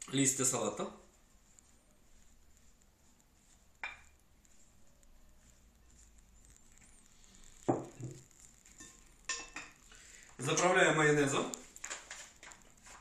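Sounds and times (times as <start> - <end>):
wooden spoon knocking glass bowl: 3.8 - 4.1.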